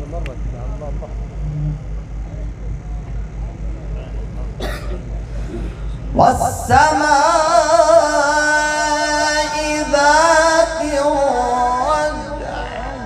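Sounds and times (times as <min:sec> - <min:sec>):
low steady hum: 0:00.0 - 0:13.0
man chanting melodically: 0:05.8 - 0:13.0.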